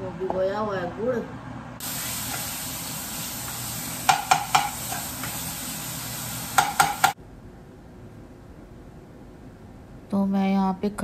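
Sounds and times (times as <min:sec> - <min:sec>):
spices sizzling in oil: 0:01.8 - 0:07.2
spoon knocking against pan: 0:04.0 - 0:05.4, 0:06.5 - 0:07.2.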